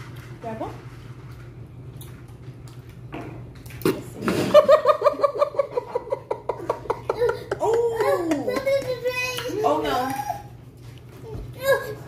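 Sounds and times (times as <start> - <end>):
person laughing: 4.4 - 8.3.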